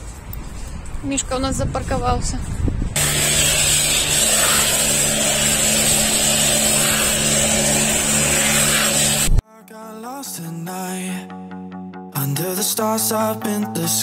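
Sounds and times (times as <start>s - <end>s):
broad rushing noise: 2.9s - 9.4s
high whine: 3.0s - 9.4s.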